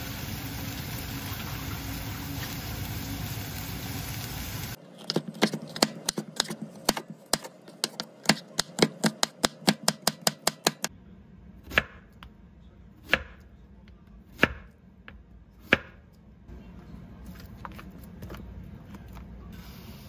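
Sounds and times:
knife chopping on wooden board: 5.0 - 10.9.

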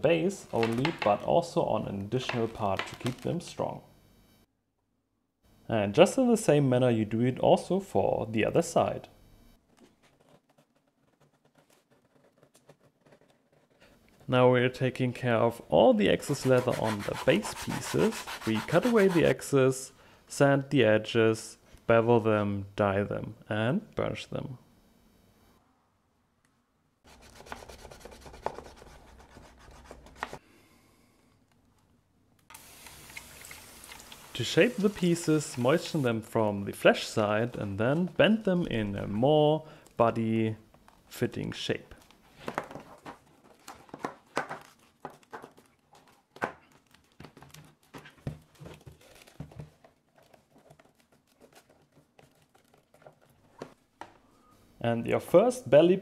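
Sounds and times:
sanding sponge rasping on leather: 16.2 - 19.4
leather rustling and creaking: 44.6 - 53.8.

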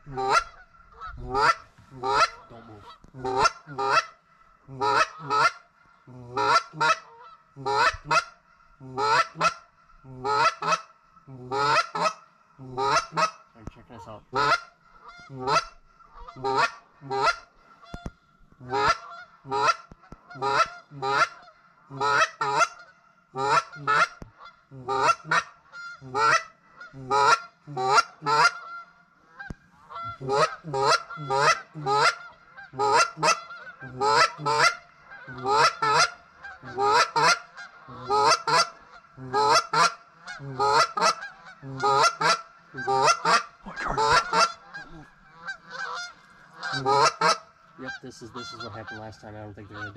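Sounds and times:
geese honking overhead: 0.0 - 49.9.

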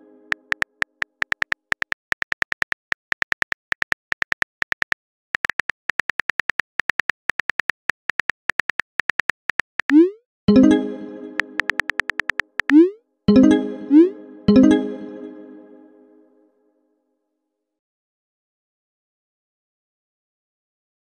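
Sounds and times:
phone keyboard tapping clicks: 0.3 - 10.0, 11.4 - 12.8.

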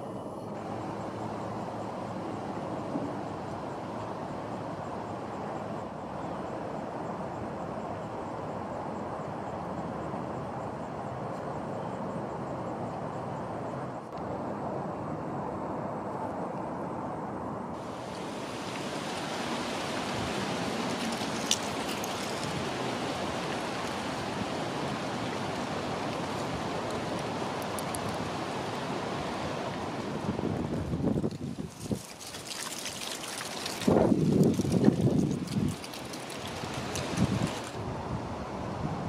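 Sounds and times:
wind buffeting microphone: 18.5 - 32.2, 33.6 - 39.0.

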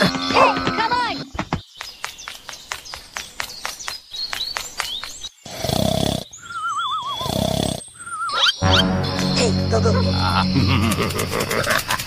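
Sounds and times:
cartoon snoring with whistle: 5.5 - 8.6.

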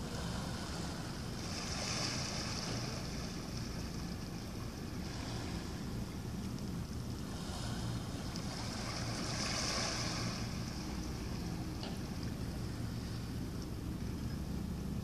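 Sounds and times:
waves washing on rocky shore: 0.0 - 6.3, 7.2 - 11.7
steady low rumble: 0.0 - 15.0.

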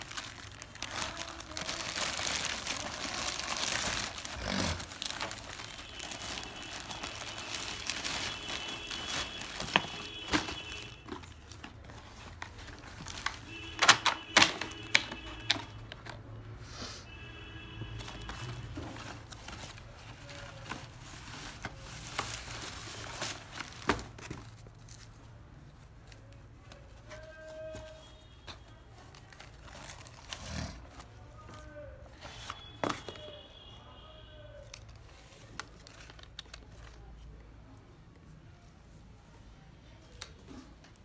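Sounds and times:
tissue paper rustling: 0.0 - 13.4, 18.0 - 28.2.

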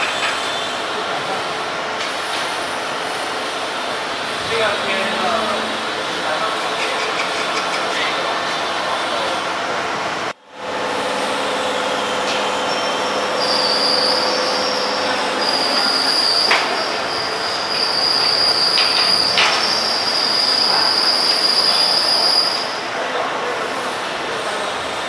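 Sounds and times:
factory machinery noise: 0.0 - 25.0
high squealing whine: 4.2 - 7.1, 10.6 - 22.9.

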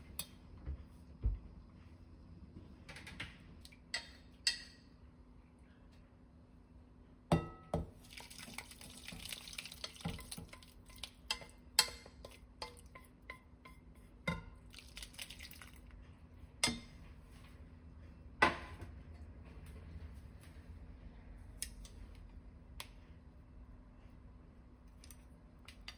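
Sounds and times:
soup pouring into a bowl: 8.0 - 11.2, 14.6 - 15.9.

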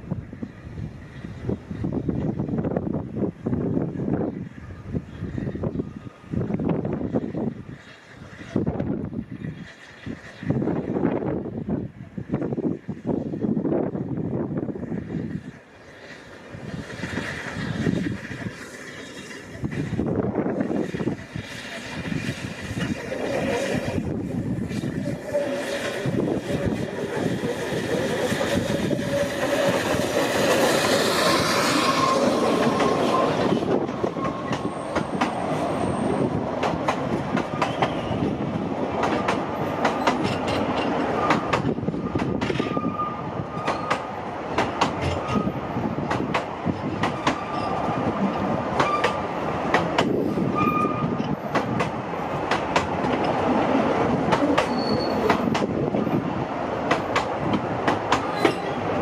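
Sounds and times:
steam locomotive exhaust: 14.9 - 38.7
wheel flanges squealing: 20.6 - 36.4, 39.6 - 44.2, 47.1 - 49.4, 50.2 - 51.6, 54.4 - 55.6, 58.2 - 59.0.

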